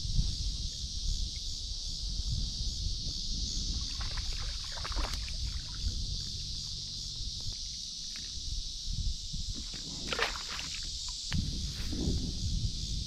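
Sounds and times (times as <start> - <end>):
crickets chirping: 0.0 - 13.0
low rumble of water: 3.5 - 7.6, 8.2 - 11.3.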